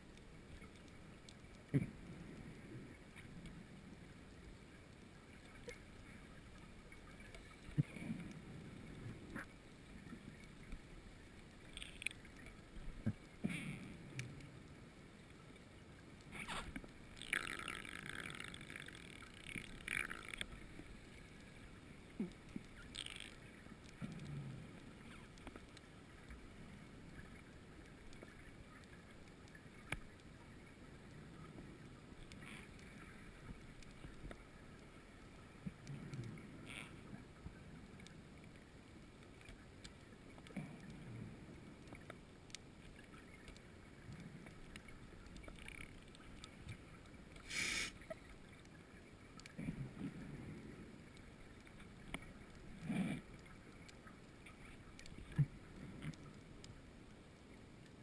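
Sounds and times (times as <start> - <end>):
steady faint hiss: 0.0 - 58.0
diver inhaling through regulator: 47.4 - 48.0.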